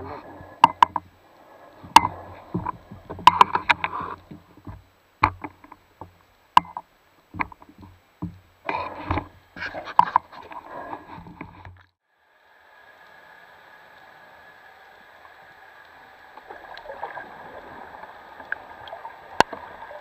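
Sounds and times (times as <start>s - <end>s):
underwater metal clicks and knocks: 0.6s - 1.1s, 1.8s - 10.3s.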